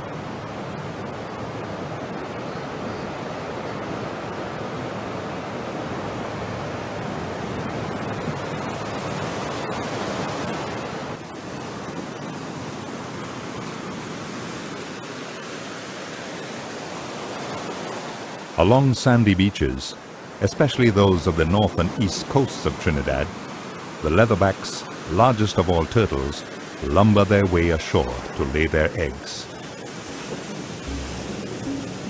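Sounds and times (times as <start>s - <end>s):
ocean surf: 0.0s - 32.0s.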